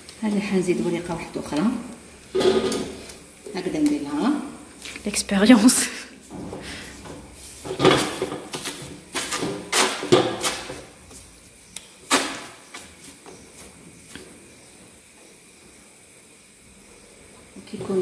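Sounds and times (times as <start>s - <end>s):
dough slapping on hot pan: 7.4s - 10.9s.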